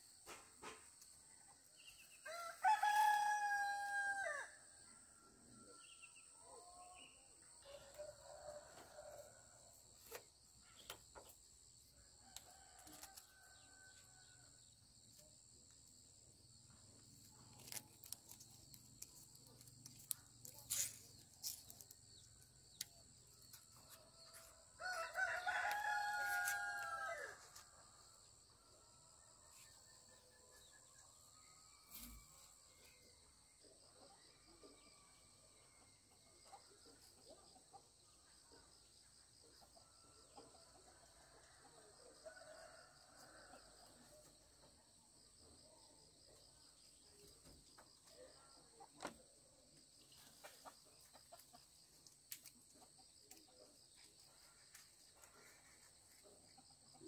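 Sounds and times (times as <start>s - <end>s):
rooster crowing: 2.2s - 4.6s, 24.8s - 27.6s.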